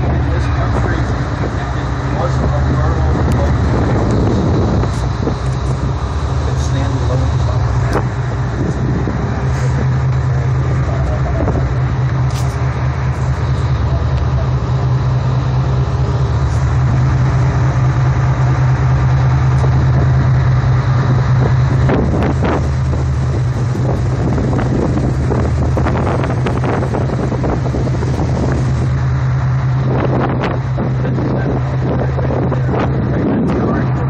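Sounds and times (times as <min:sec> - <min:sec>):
speedboat engine droning: 0:00.0 - 0:34.0
wind and water rushing: 0:00.0 - 0:34.0.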